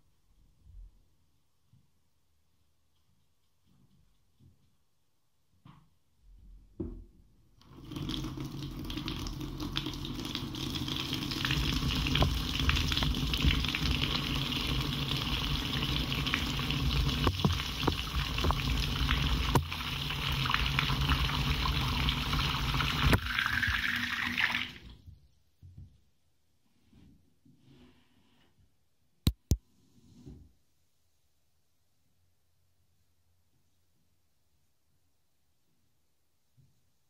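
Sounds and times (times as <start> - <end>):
water splashing into a basin: 7.6 - 24.9.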